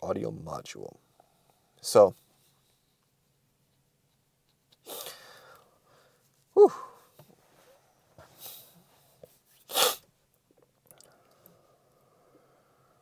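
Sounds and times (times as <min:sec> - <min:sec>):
man sniffing: 0:04.8 - 0:05.6, 0:09.6 - 0:10.1.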